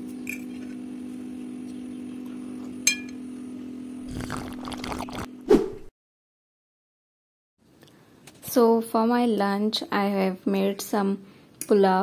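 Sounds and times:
sipping from a mug: 0:04.0 - 0:05.3.

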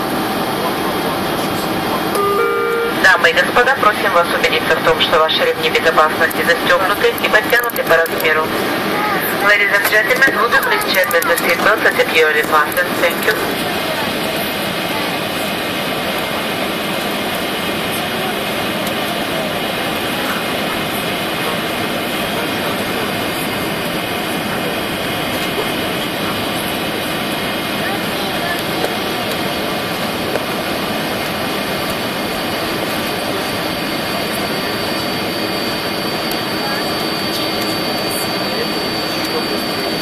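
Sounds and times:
airliner cabin jet engine rush: 0:00.0 - 0:40.0
thin high whine: 0:02.1 - 0:03.6, 0:32.9 - 0:40.0.

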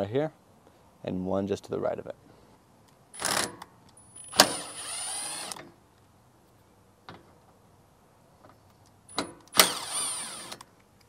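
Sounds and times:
cordless drill motor whine: 0:04.2 - 0:05.6, 0:09.5 - 0:10.6
drill sharp click: 0:04.2 - 0:05.6, 0:09.1 - 0:10.6.

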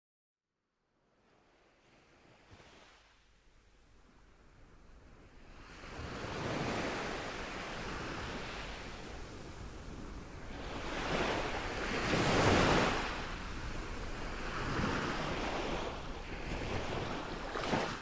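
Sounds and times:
ocean surf washing in: 0:05.8 - 0:18.0.

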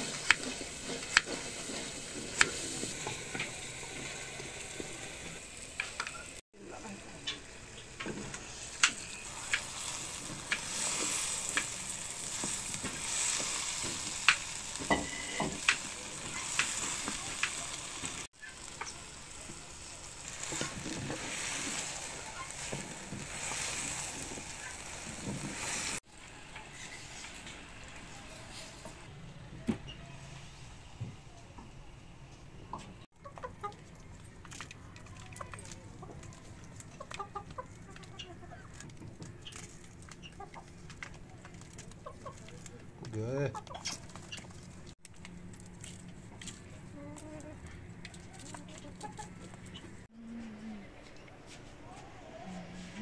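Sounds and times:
wooden spoon scraping a clay pot: 0:00.0 - 0:04.2
vegetables sizzling in hot oil: 0:00.0 - 0:06.4, 0:07.1 - 0:26.0.

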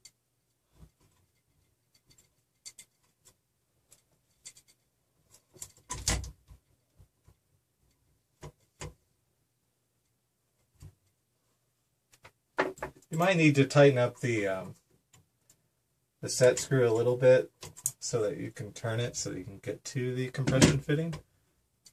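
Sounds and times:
small clicks and knocks of parts: 0:00.0 - 0:09.0, 0:14.9 - 0:15.6, 0:17.5 - 0:18.1, 0:20.4 - 0:21.9.

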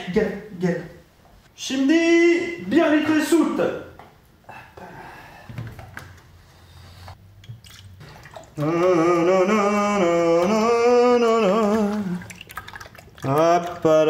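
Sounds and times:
person singing a long note: 0:08.6 - 0:12.3.

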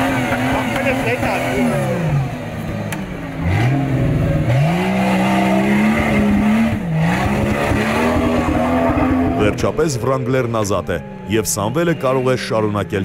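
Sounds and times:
car engine revving hard: 0:00.0 - 0:10.1.

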